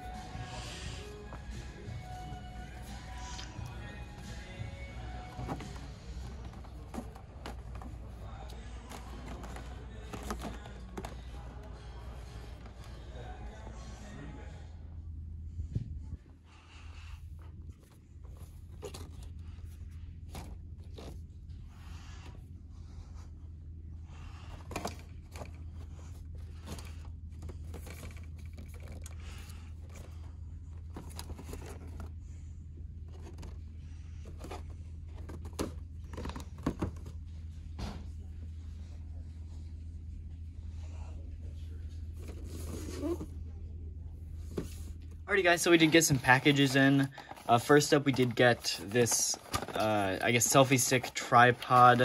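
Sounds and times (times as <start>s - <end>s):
steady low hum: 0.0s - 52.0s
packaging rustling and clicking: 5.2s - 12.9s, 45.6s - 52.0s.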